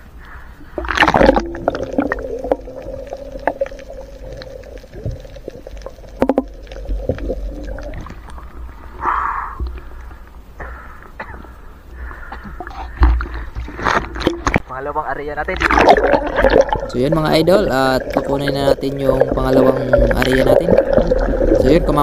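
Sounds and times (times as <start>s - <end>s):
steady low underwater hum: 0.0s - 22.0s
water splash: 0.8s - 8.5s, 15.5s - 22.0s
muffled underwater clicks and knocks: 3.4s - 8.6s, 12.3s - 14.7s.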